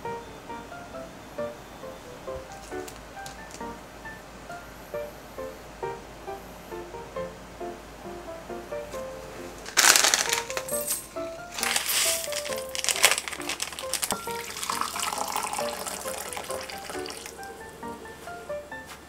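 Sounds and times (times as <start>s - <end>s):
background music with bright notes: 0.0s - 19.0s
water splashing: 12.1s - 17.8s.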